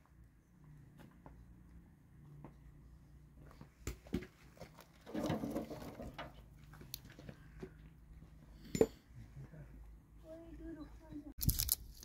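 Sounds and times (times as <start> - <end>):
sticks rustling and scraping: 4.4 - 6.4, 11.4 - 12.0.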